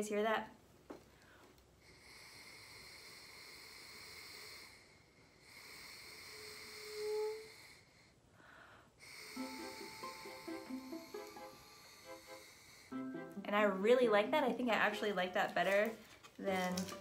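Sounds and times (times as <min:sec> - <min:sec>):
party blower airy hiss: 0:09.0 - 0:13.2
background music: 0:09.4 - 0:14.7, 0:16.6 - 0:17.0.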